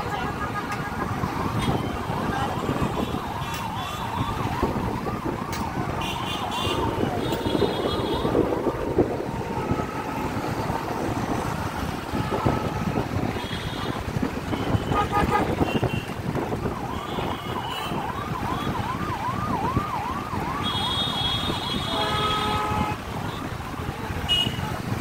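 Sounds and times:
engines in slow traffic: 0:00.0 - 0:25.0
vehicle horns beeping: 0:12.1 - 0:16.1, 0:20.7 - 0:23.0, 0:24.3 - 0:24.7.

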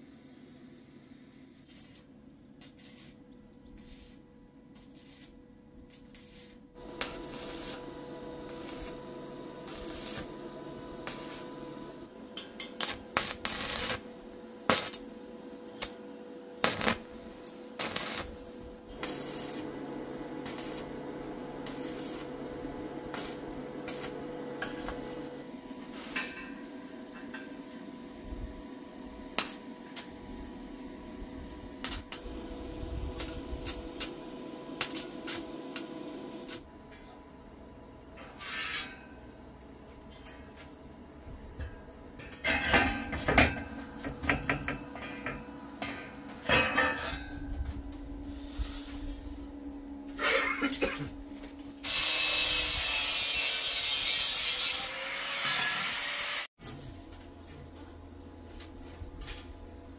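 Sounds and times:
welding arc crackling: 0:01.6 - 0:03.2, 0:03.8 - 0:04.2, 0:04.8 - 0:16.0, 0:16.6 - 0:25.4, 0:29.3 - 0:30.1, 0:31.4 - 0:36.7, 0:51.8 - 0:56.5
electrical hum: 0:03.3 - 0:38.2, 0:39.2 - 0:51.9.

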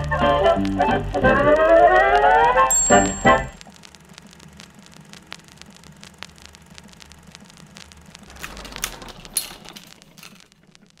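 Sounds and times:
film crackle clicks and pops: 0:00.0 - 0:11.0
low steady hum: 0:00.0 - 0:11.0.

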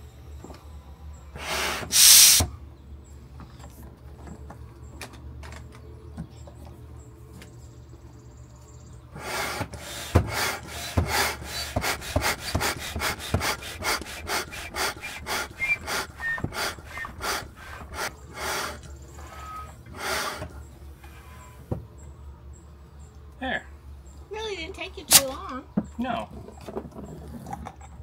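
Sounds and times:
hand pump air strokes: 0:01.4 - 0:02.5, 0:09.2 - 0:20.5.

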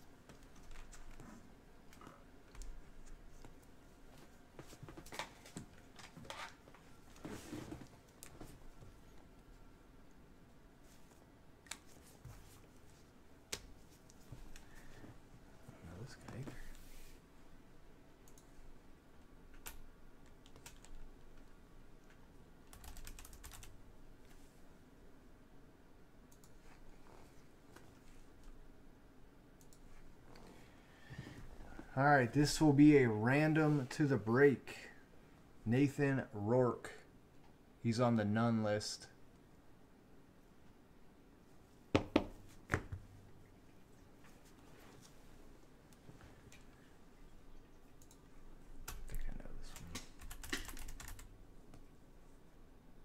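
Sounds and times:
typing on computer keyboard: 0:19.5 - 0:21.0, 0:22.6 - 0:23.7, 0:48.8 - 0:51.3.

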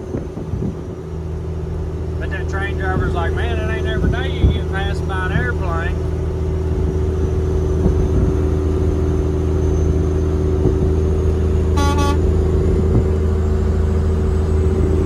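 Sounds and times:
diesel truck engine cruising: 0:00.0 - 0:15.0
truck horn blast: 0:11.7 - 0:12.4.

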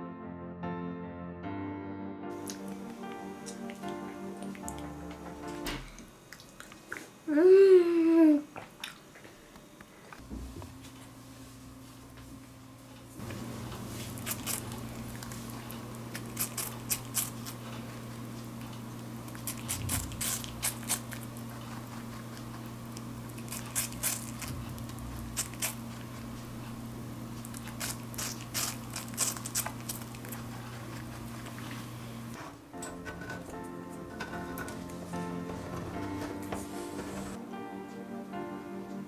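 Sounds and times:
steady low hum: 0:02.4 - 0:39.0
rabbit crunching apple: 0:13.3 - 0:32.4.

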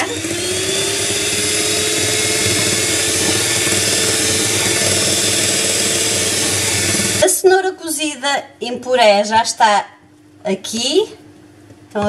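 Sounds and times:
electric hand mixer running: 0:00.0 - 0:07.3.

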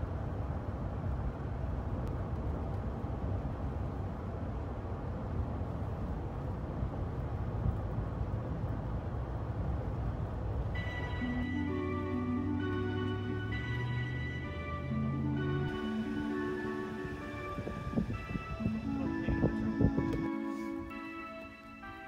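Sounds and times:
car road and engine rumble: 0:00.0 - 0:22.0
music: 0:10.8 - 0:22.0.

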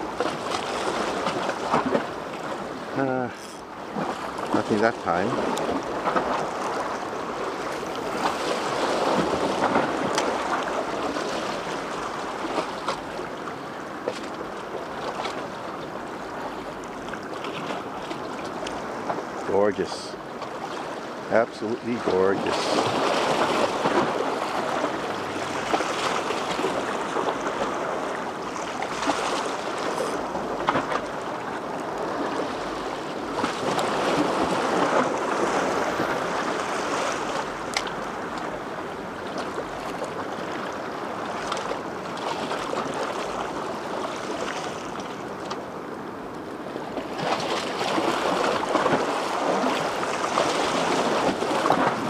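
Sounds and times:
small waves washing on shore: 0:00.0 - 0:52.0.

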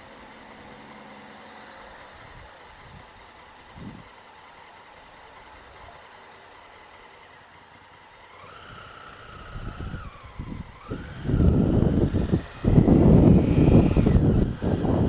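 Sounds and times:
motorcycle engine: 0:00.0 - 0:15.0
wind buffeting microphone: 0:09.3 - 0:15.0.

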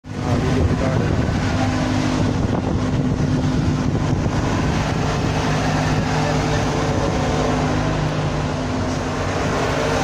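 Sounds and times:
heavy machinery engine hum: 0:00.0 - 0:10.0.

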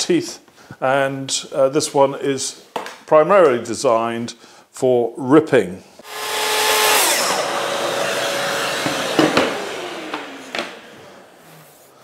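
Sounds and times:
circular saw spinning down: 0:06.0 - 0:12.0
knocks: 0:08.8 - 0:10.8.

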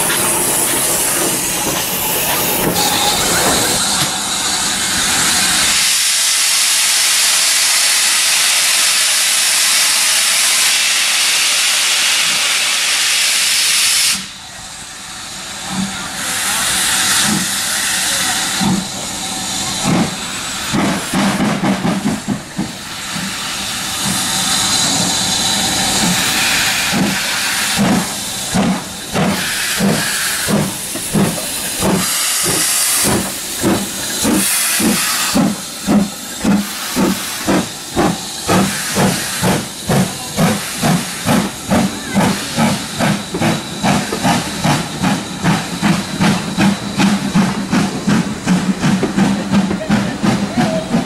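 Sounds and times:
train wheels clattering over rail joints: 0:00.0 - 0:04.2, 0:19.8 - 0:51.0
steam locomotive hissing steam: 0:00.0 - 0:51.0.

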